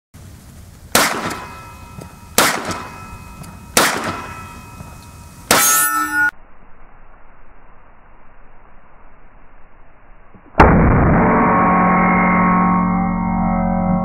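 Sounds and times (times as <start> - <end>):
pistol shots: 0.9 - 1.8, 2.4 - 3.1, 3.7 - 4.6
loud ringing clang: 1.1 - 6.4, 10.6 - 14.0
metallic ringing: 1.2 - 6.4, 11.2 - 14.0.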